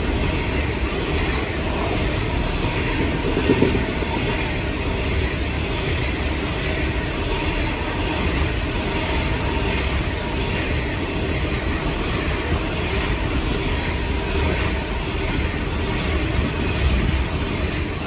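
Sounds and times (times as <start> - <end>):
train wagons rumbling on rails: 0.0 - 18.0.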